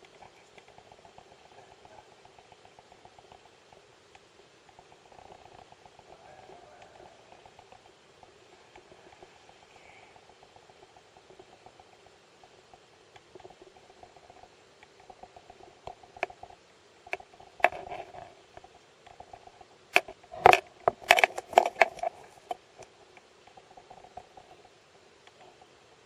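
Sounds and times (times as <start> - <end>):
faint steady hum: 0.0 - 26.0
sharp clicks and knocks: 12.8 - 25.7.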